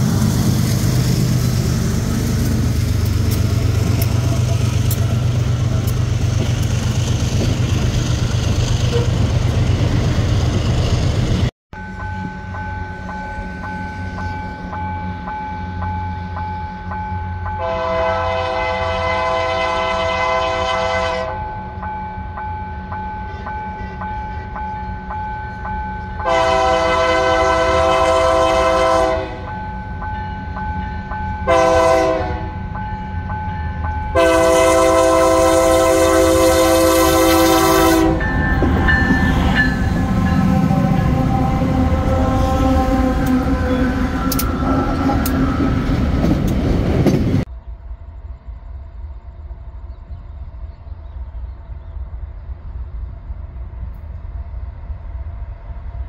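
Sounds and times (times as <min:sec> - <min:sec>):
train wheels rumbling on rail: 0:00.0 - 0:56.0
locomotive horn blasts: 0:08.9 - 0:09.3, 0:17.6 - 0:21.4, 0:26.2 - 0:29.5, 0:31.5 - 0:32.6, 0:34.1 - 0:38.7, 0:39.3 - 0:45.4
bell ringing: 0:38.2 - 0:41.2.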